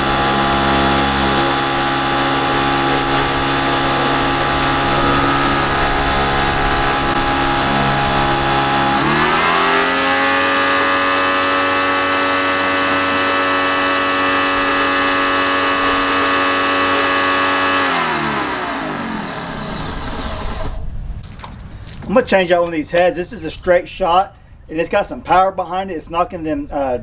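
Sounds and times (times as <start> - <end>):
pressure washer whine: 0.0 - 20.9.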